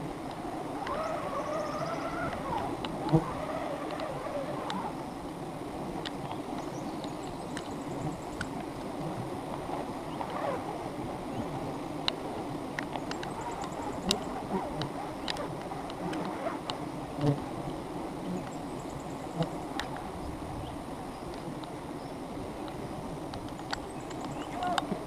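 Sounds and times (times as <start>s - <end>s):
bee swarm buzzing: 0.0s - 6.0s, 13.2s - 18.5s.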